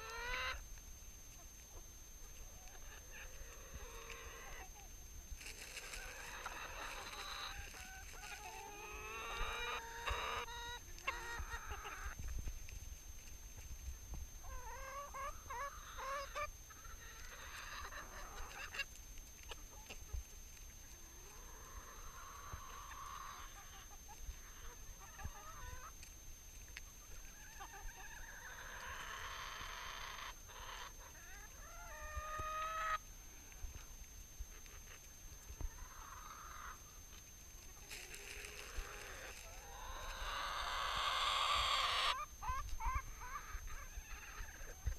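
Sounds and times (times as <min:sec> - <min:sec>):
hens clucking: 0:00.0 - 0:00.7, 0:01.3 - 0:12.3, 0:14.4 - 0:44.9.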